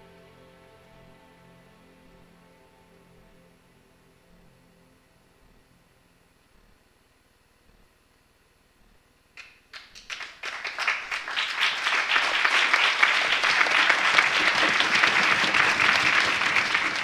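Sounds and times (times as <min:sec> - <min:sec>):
audience applause: 0:09.7 - 0:17.0.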